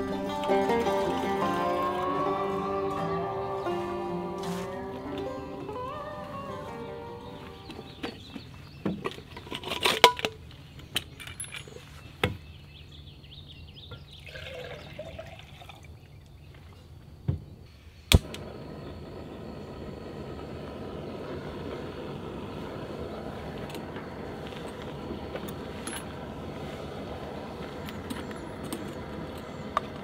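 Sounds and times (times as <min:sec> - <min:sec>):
gas camp stove burning hiss: 0:00.0 - 0:10.6, 0:17.6 - 0:30.0
sharp click of stove lighting: 0:18.1 - 0:18.5.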